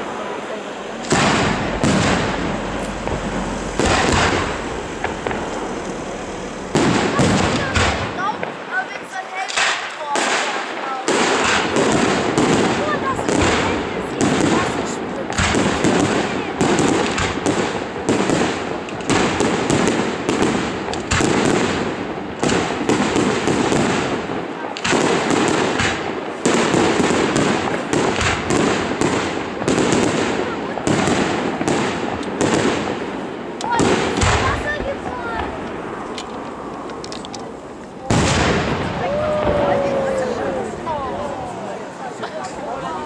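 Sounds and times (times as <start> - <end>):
rumble after bangs: 0.0 - 8.7
firework shells bursting: 0.0 - 40.9.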